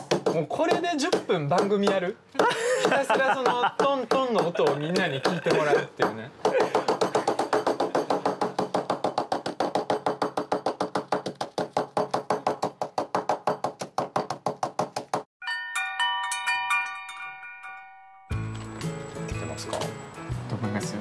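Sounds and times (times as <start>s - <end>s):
bell-like chime jingle: 15.4s - 20.4s.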